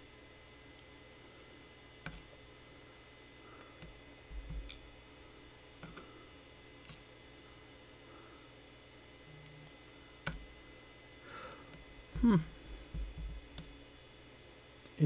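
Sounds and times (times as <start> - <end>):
person humming: 12.1 - 12.6.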